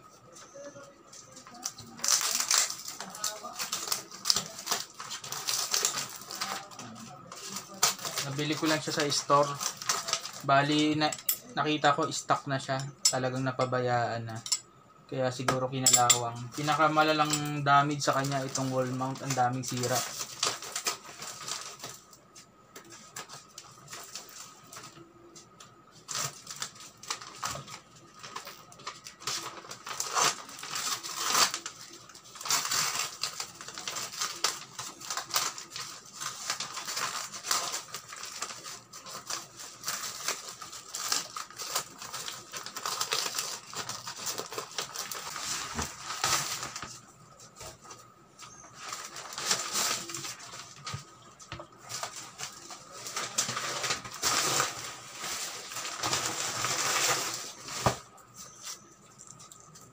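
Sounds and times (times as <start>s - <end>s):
paper crinkling and ripping: 0.5s - 12.1s, 16.5s - 25.3s, 25.9s - 59.9s.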